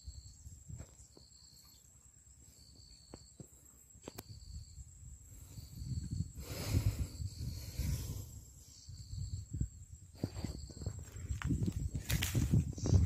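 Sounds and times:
insect chirping: 0:00.0 - 0:13.0
rushing rustling noise: 0:10.3 - 0:13.0.

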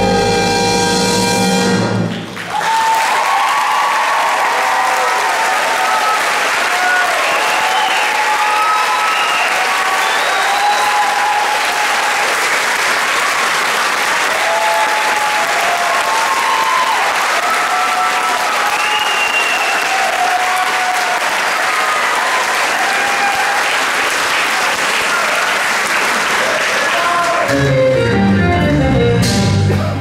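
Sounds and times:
audience applauding: 0:02.0 - 0:27.7
cheers and whoops: 0:02.5 - 0:12.4, 0:14.2 - 0:23.9, 0:25.0 - 0:25.6, 0:26.3 - 0:27.5.

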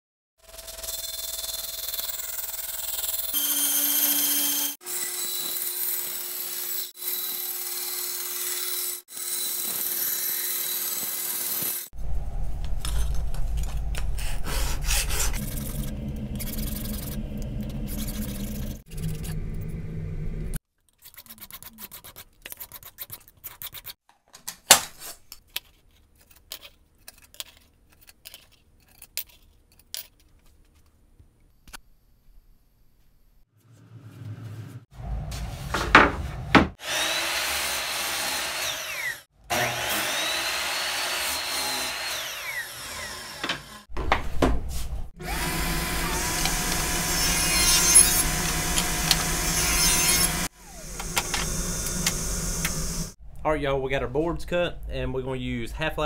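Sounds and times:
band saw cutting metal: 0:00.4 - 0:11.9, 0:14.2 - 0:20.6, 0:36.7 - 0:43.9, 0:45.2 - 0:53.2.

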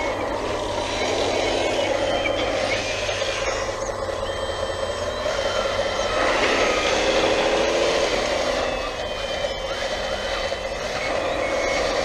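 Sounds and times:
hydraulic pump and motors whining: 0:00.0 - 0:12.0.

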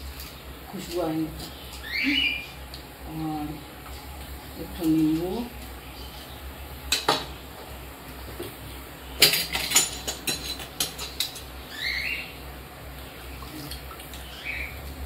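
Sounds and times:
bird chirping: 0:01.5 - 0:02.6, 0:11.7 - 0:12.4, 0:13.5 - 0:14.8
kitchen utensils clicking: 0:09.2 - 0:11.5.

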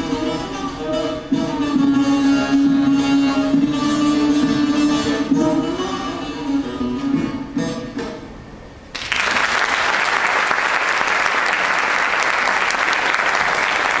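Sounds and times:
audience applause: 0:08.9 - 0:14.0.

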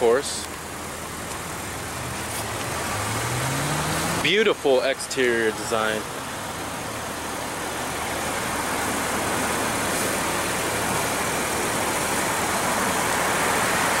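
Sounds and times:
car engine idling: 0:00.0 - 0:14.0
broad hiss: 0:07.9 - 0:14.0.

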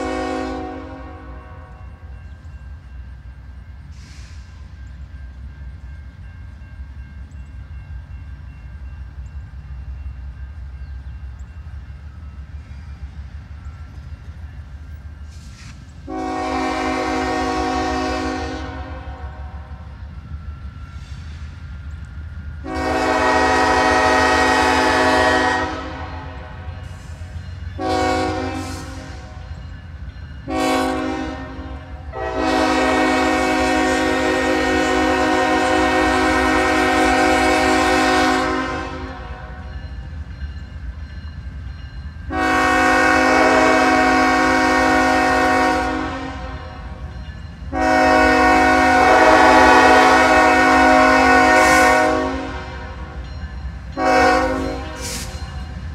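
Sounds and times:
locomotive air horn blasts: 0:00.0 - 0:02.0, 0:15.6 - 0:19.9, 0:22.6 - 0:29.4, 0:30.4 - 0:39.7, 0:42.3 - 0:47.1, 0:47.7 - 0:53.2, 0:54.0 - 0:55.4
distant train rumble: 0:00.0 - 0:55.9.

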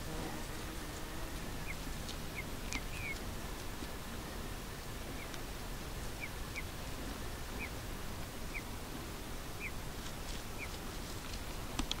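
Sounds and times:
low background hiss: 0:00.0 - 0:12.0
bird peeping calls: 0:01.3 - 0:03.2, 0:06.0 - 0:07.8, 0:08.5 - 0:08.7, 0:09.6 - 0:09.8, 0:10.6 - 0:10.8.

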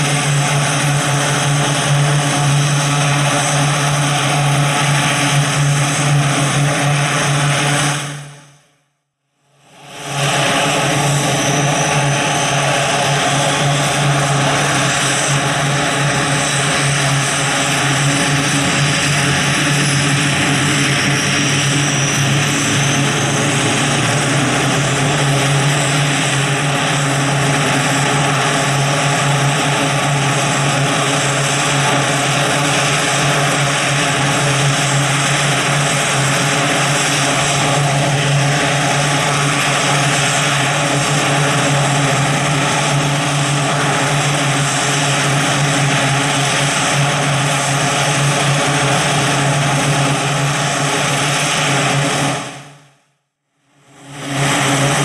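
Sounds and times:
low propeller drone: 0:00.0 - 0:55.0
high turbine whine: 0:09.6 - 0:52.8.

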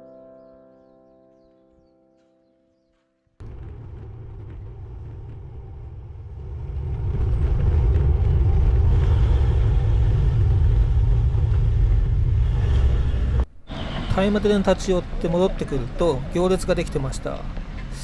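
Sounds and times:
wind rushing over microphone: 0:03.4 - 0:14.7.

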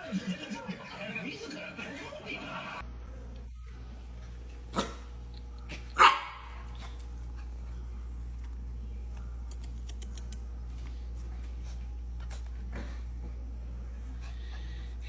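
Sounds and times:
steady low hum: 0:00.0 - 0:15.0
puppy barking: 0:04.7 - 0:05.1, 0:05.7 - 0:06.7.

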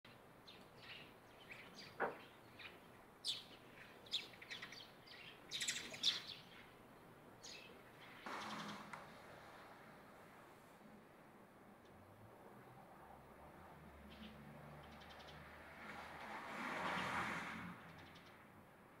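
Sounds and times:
sparrows chirping: 0:00.1 - 0:09.2, 0:14.0 - 0:15.5.

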